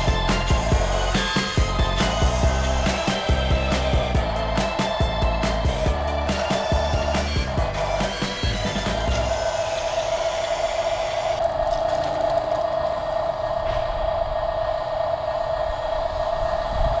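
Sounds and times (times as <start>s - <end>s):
toy truck motor whirring: 0.0s - 13.6s.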